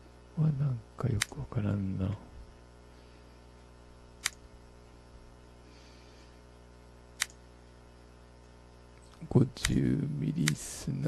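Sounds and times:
low electrical hum: 0.0s - 11.0s
computer mouse clicks: 1.2s - 1.4s, 4.2s - 4.4s, 7.2s - 7.4s.

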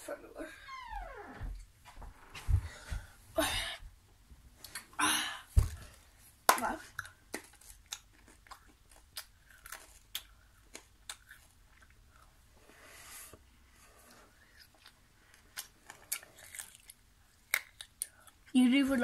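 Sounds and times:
child chewing candy: 6.9s - 18.6s.

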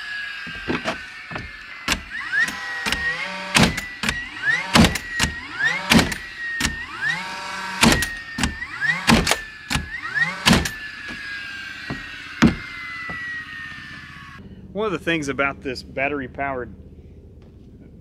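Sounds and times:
nail gun motor whine: 0.0s - 14.4s
nail gun firing bangs: 1.9s - 10.9s.

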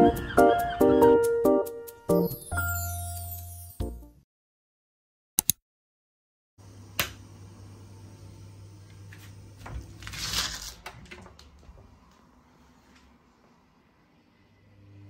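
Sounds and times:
sharp click: 5.4s - 5.6s
low room hum: 6.6s - 15.0s
rustling: 9.6s - 11.3s.

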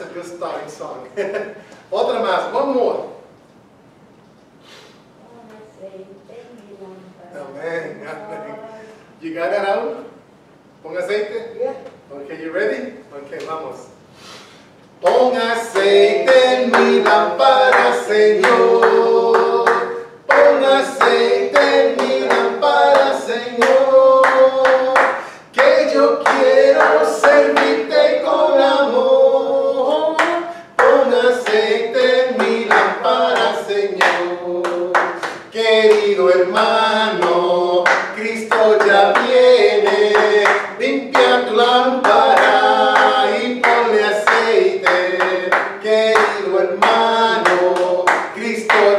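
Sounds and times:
congregation singing: 15.0s - 48.9s.

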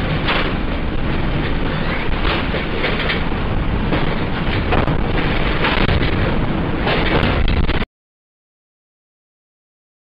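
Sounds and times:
objects clattering and rattling: 0.0s - 7.8s
loud steady noise: 0.0s - 7.9s.

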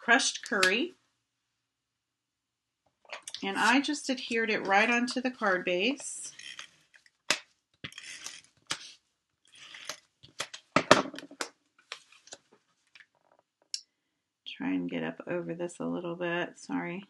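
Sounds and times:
paper rustling and scraping: 7.9s - 10.5s.

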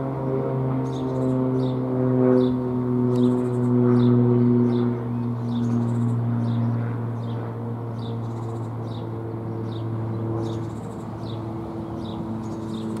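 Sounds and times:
bird chirping: 8.0s - 13.0s.

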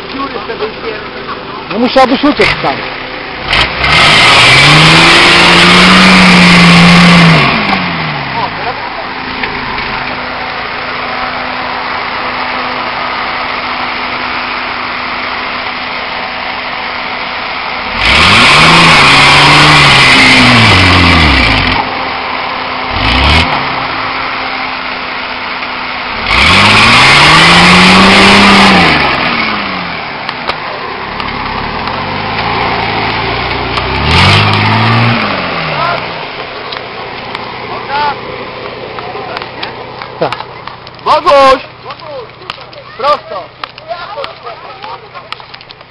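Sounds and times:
diesel engine idling and revving: 0.0s - 45.9s
tyres spinning in dirt: 17.2s - 45.9s.

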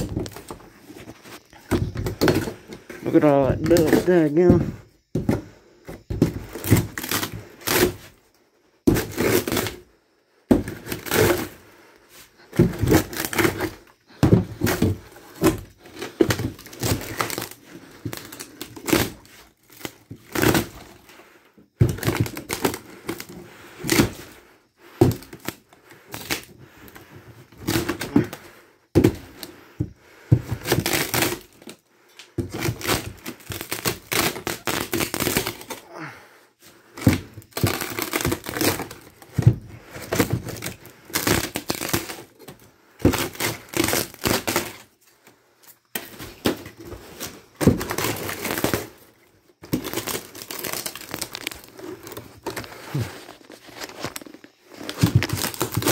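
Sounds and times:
wood cracking and breaking: 0.0s - 5.5s, 6.1s - 8.0s, 12.6s - 21.1s, 21.8s - 24.3s, 30.3s - 36.1s, 37.0s - 44.9s, 45.9s - 53.1s, 54.2s - 55.9s.

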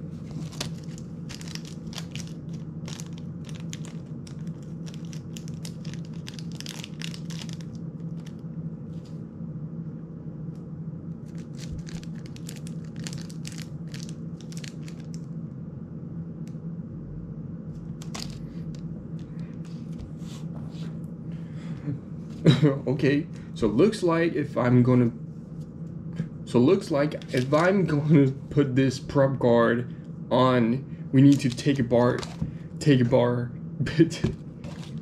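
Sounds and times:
steady low hum: 0.0s - 35.0s
plastic bag crinkling: 0.2s - 8.4s, 11.3s - 15.3s, 18.0s - 18.5s, 27.1s - 27.9s, 31.3s - 32.5s, 34.7s - 35.0s.

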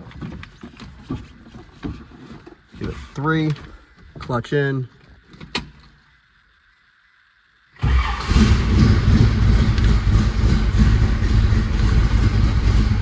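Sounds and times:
car engine starting and running: 7.8s - 13.0s.

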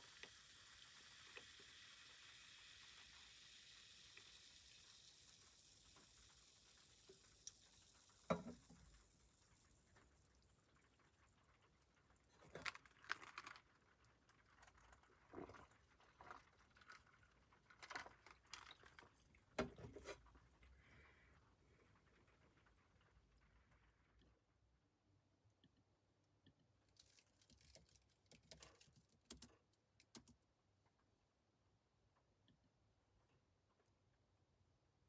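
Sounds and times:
food sizzling: 0.0s - 11.1s
small clicks and knocks: 26.4s - 30.5s.

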